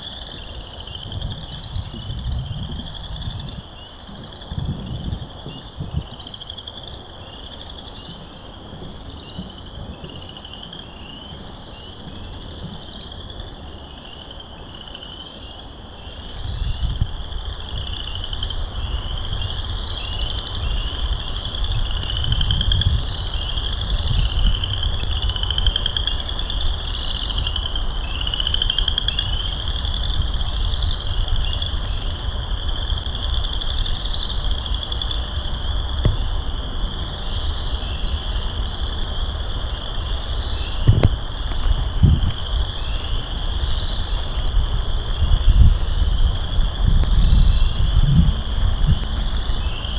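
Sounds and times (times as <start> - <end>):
frogs trilling in chorus: 0.0 - 49.9
low rumble: 35.2 - 49.9.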